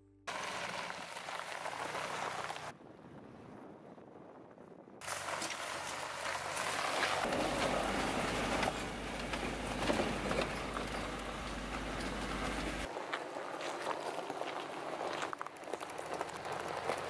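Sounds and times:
tyre and road noise: 0.3s - 17.0s
knocks and rattles: 7.2s - 12.9s.

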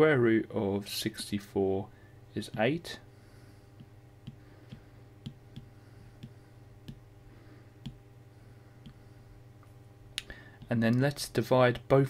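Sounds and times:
faint steady hum: 0.0s - 12.0s
stylus tapping on tablet: 3.8s - 7.1s, 7.8s - 8.0s.

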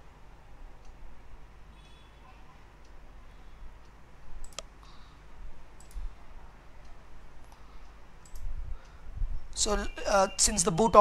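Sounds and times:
low steady hum: 0.0s - 11.0s
computer mouse clicks: 3.8s - 5.0s, 5.7s - 6.2s, 6.8s - 8.6s.

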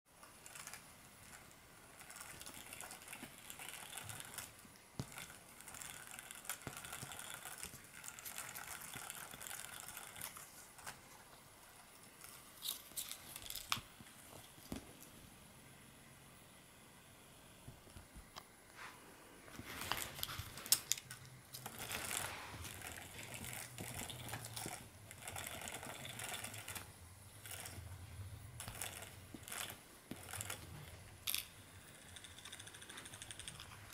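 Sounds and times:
scratchy mechanical rustle: 19.6s - 31.4s.

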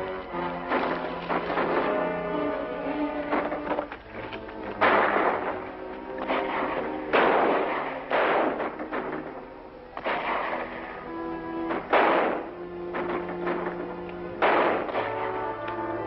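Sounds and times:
orchestral film score: 0.0s - 16.0s
loud gunshots: 0.7s - 2.4s, 4.8s - 10.9s, 11.6s - 15.5s.

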